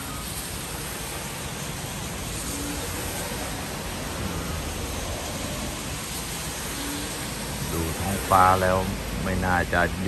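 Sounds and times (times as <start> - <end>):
frog call: 0.0 - 0.4
rain on leaves: 0.0 - 10.0.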